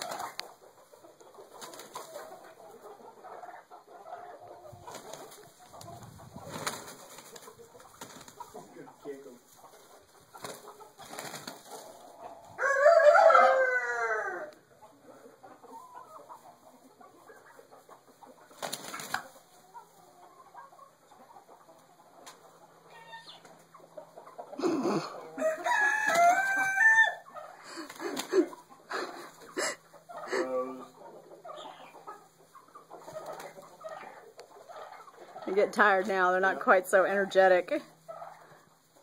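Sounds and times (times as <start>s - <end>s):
wings flapping: 0.0s - 0.4s, 1.5s - 2.3s, 4.8s - 8.6s, 10.3s - 11.8s, 18.5s - 19.4s, 27.8s - 28.6s, 33.0s - 33.7s
rooster crowing: 12.6s - 14.6s, 25.4s - 27.8s.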